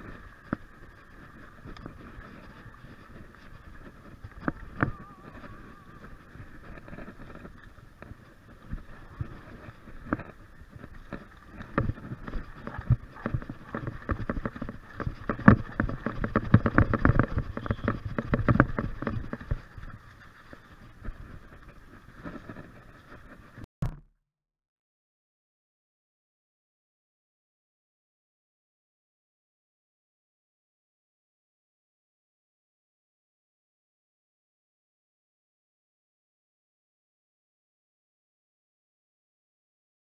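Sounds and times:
steady rushing noise: 0.0s - 23.6s
mountain bike rattling and knocking: 0.0s - 24.0s.

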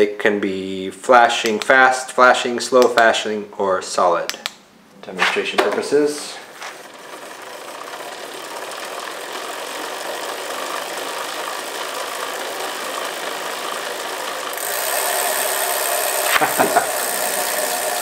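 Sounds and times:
bicycle wheel spinning and rattling: 6.5s - 18.0s.

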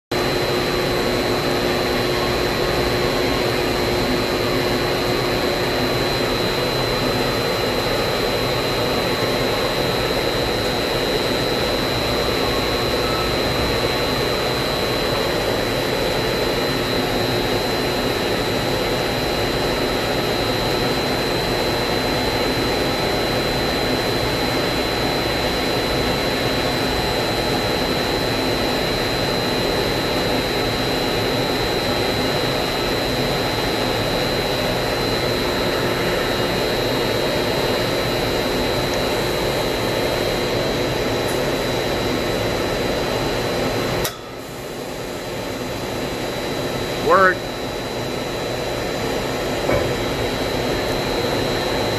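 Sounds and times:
machinery whine and hum: 0.1s - 51.9s.

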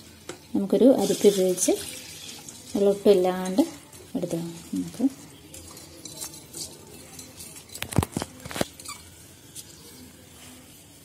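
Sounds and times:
wet rice grains rustling in strainer: 0.8s - 8.8s.

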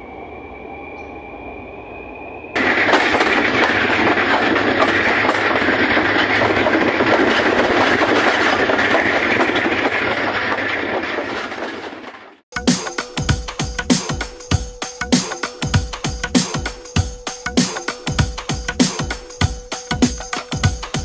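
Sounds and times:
faint high whine: 0.0s - 4.2s
train rattling along track: 0.0s - 21.0s.

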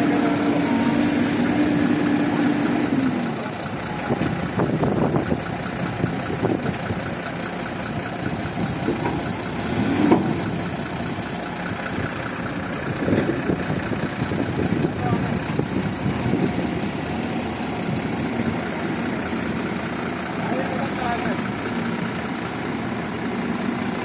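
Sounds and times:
diesel engines idling: 0.0s - 24.0s
knocks and clatter: 8.6s - 10.6s.

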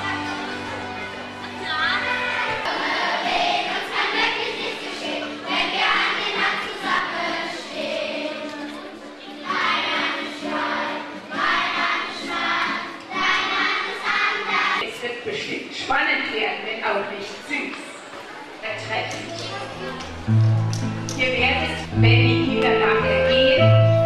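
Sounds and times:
children's choir singing: 0.0s - 14.8s.

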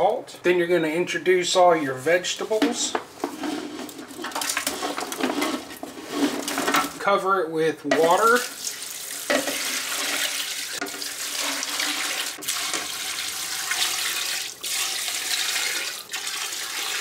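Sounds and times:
water pouring into a pot: 8.0s - 17.0s.

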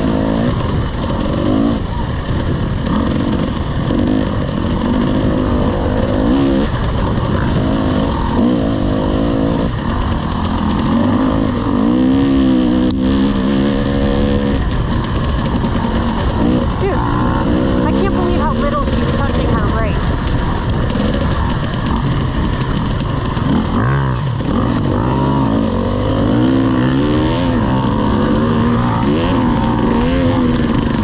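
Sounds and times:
dirt bike engine revving: 0.0s - 31.0s
wind and ground noise: 0.0s - 31.0s
sharp tick: 9.6s - 18.1s, 20.2s - 25.0s.

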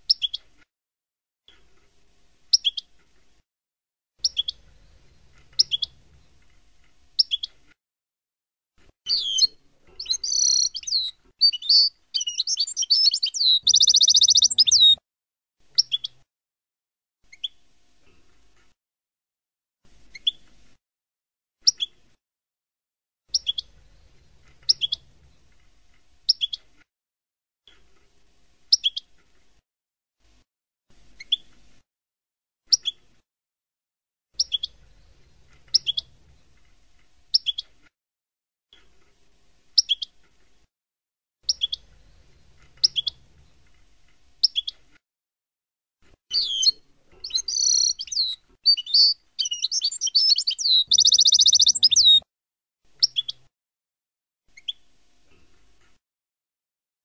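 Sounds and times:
goldfinch call notes: 9.1s - 15.0s, 46.3s - 52.2s
goldfinch twittering song: 9.1s - 15.0s, 46.3s - 52.2s.

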